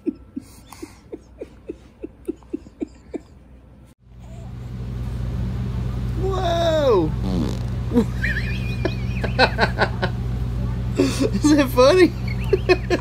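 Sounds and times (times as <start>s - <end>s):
baby farting: 7.2s - 7.8s.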